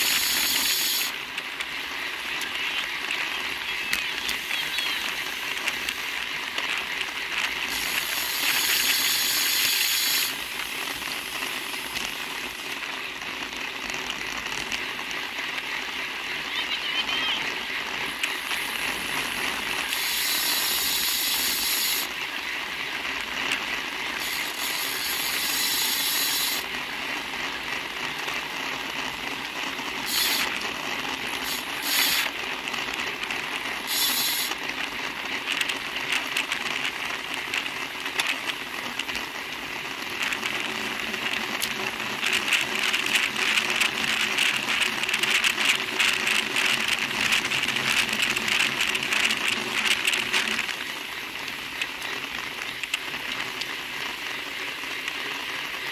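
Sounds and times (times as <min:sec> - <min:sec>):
bicycle freehubs ticking: 0:00.0 - 0:03.6, 0:04.2 - 0:16.6, 0:17.3 - 0:55.9
bicycle tyre noise: 0:00.0 - 0:55.9.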